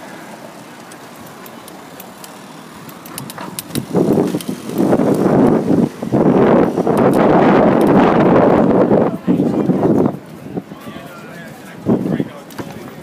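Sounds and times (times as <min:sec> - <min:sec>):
street noise: 0:00.0 - 0:13.0
wind buffeting microphone: 0:02.7 - 0:13.0.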